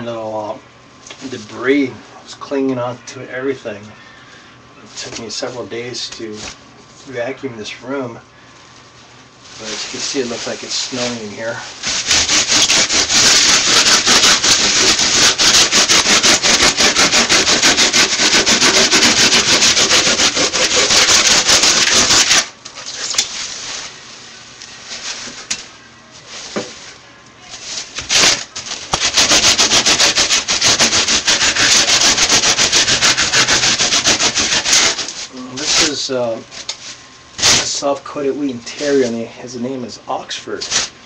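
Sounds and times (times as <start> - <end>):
tool scraping foam block: 11.8 - 22.5, 27.9 - 36.0, 37.4 - 37.8.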